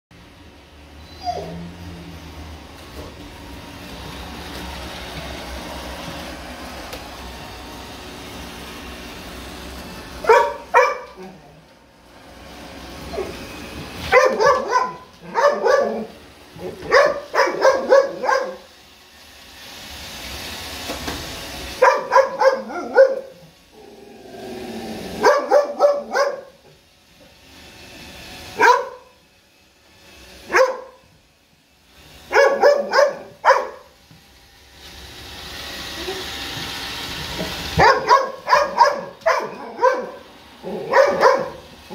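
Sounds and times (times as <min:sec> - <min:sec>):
dog barking: 0:10.2 - 0:11.3, 0:14.1 - 0:16.1, 0:16.8 - 0:18.6, 0:21.8 - 0:23.4, 0:25.2 - 0:26.6, 0:28.6 - 0:29.1, 0:30.5 - 0:31.0, 0:32.3 - 0:33.9, 0:37.8 - 0:41.6.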